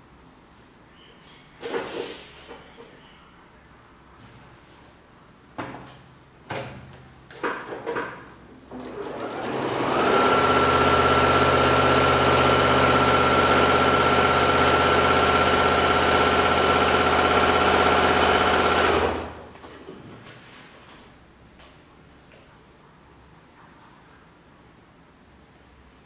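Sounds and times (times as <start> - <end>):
sewing machine stitching: 8.7 - 19.4.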